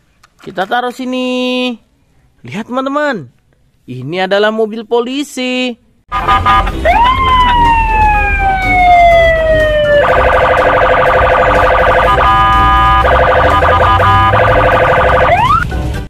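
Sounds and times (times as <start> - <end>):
police siren wailing and yelping: 6.1 - 15.7.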